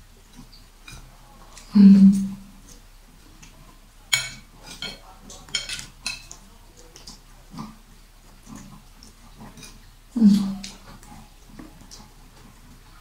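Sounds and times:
eating noises: 0:00.0 - 0:13.0
cutlery clinking on ceramic plates: 0:04.1 - 0:06.4.

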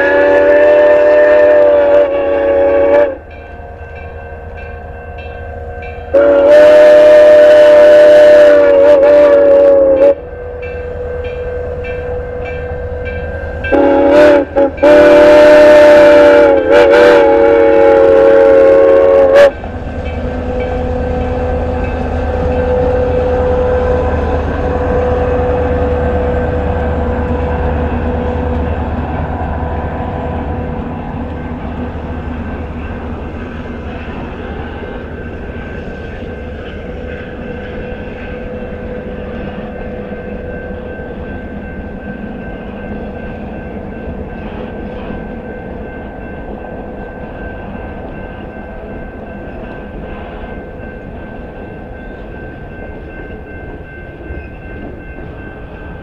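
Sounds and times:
steam whistle blasts: 0:00.0 - 0:03.8, 0:04.9 - 0:30.4
train rumbling: 0:00.0 - 0:56.0.

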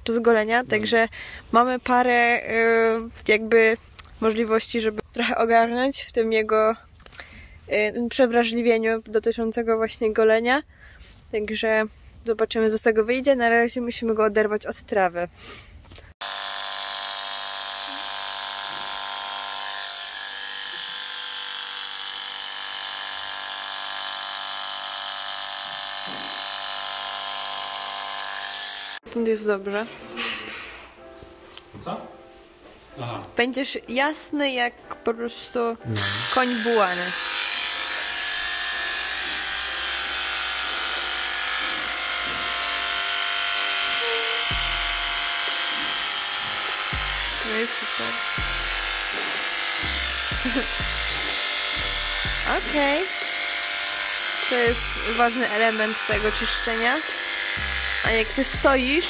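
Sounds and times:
electric clippers buzzing: 0:16.2 - 0:29.1, 0:35.8 - 0:59.0.

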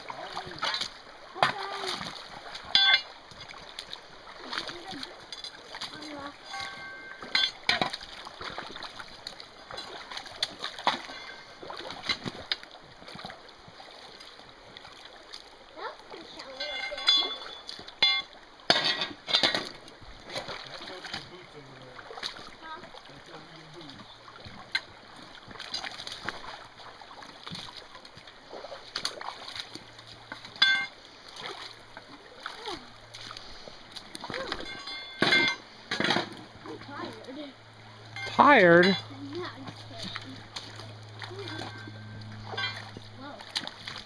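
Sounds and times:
boots splashing in creek: 0:00.0 - 0:44.0
running water rushing: 0:00.0 - 0:44.0
walking sticks knocking on stones: 0:02.6 - 0:03.5, 0:05.3 - 0:08.0, 0:16.6 - 0:19.8, 0:30.3 - 0:30.9
loud ringing clink: 0:06.5 - 0:07.6, 0:34.7 - 0:35.6.

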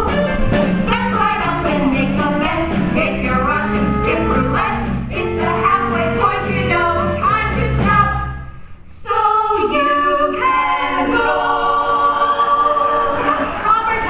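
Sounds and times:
band bass: 0:00.0 - 0:08.6
women singing in harmony: 0:00.8 - 0:14.0.

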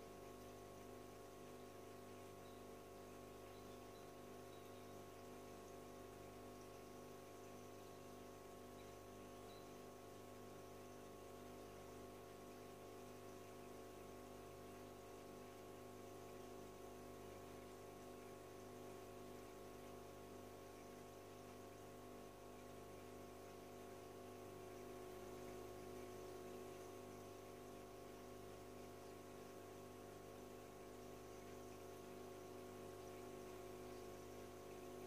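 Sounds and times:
filter pump electrical hum: 0:00.0 - 0:35.0.

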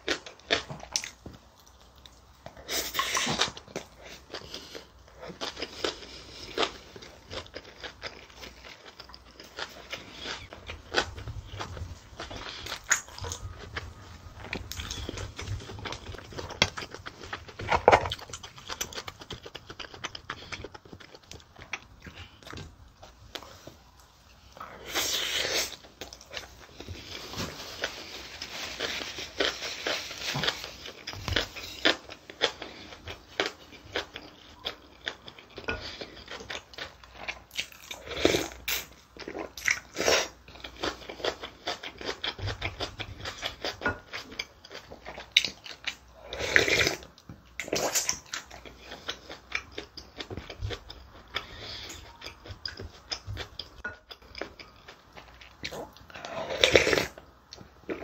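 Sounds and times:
chewing and mouth smacks: 0:00.1 - 0:23.6.

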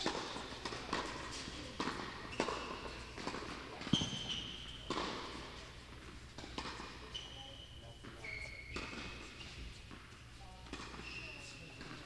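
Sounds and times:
tennis ball strikes: 0:00.0 - 0:07.0
thin high squeak: 0:02.3 - 0:03.1, 0:07.0 - 0:09.8, 0:10.9 - 0:12.0.

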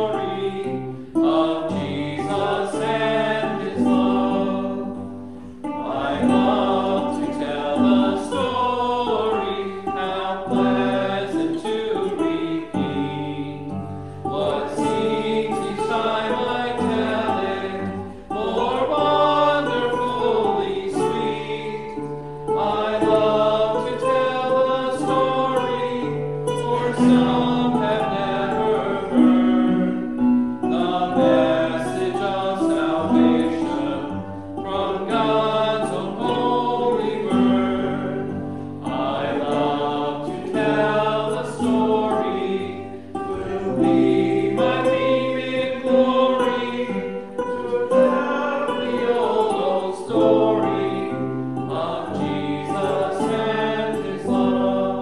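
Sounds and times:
classical guitar: 0:00.0 - 0:55.0
congregation singing a hymn: 0:00.0 - 0:55.0.

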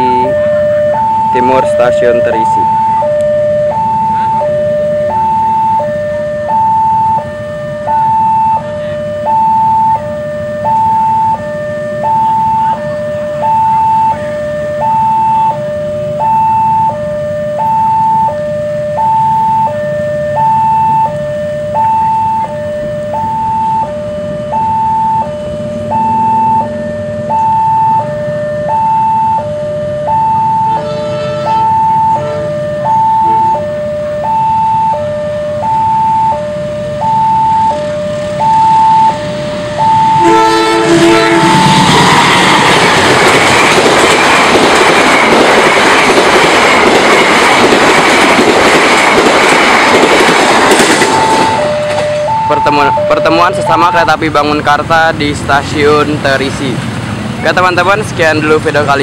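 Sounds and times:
train horn: 0:00.0 - 0:17.8, 0:29.3 - 0:43.0, 0:50.8 - 0:54.0
level crossing alarm two-tone: 0:00.0 - 0:54.6.

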